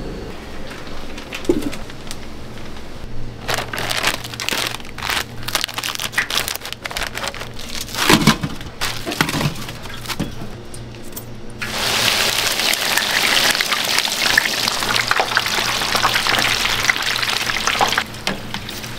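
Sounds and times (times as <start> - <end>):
low steady hum: 0.0 - 12.4
plastic bag crinkling: 3.4 - 10.4.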